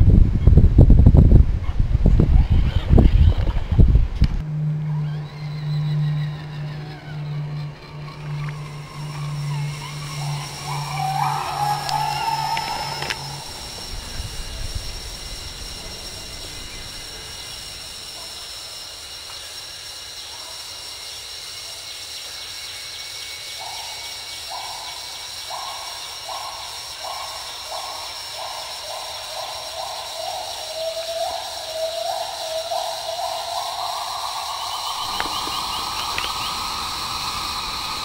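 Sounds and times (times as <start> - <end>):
electric motor whining: 4.4 - 18.5, 34.9 - 38.0.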